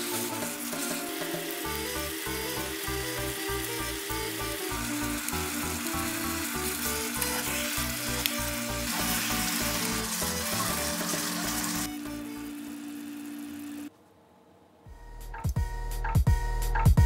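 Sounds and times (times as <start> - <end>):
food sizzling in a frying pan: 0.0 - 13.9
background music with bass line: 14.9 - 17.0.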